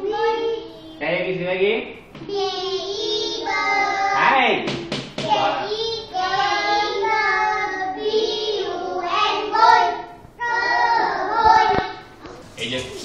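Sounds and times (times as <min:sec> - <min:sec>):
children chanting: 0:05.3 - 0:13.0.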